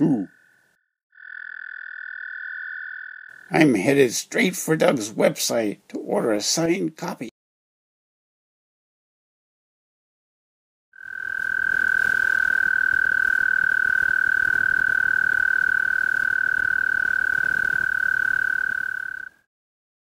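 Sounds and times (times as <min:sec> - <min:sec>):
toad trilling: 0:00.2 - 0:03.6, 0:11.0 - 0:19.4.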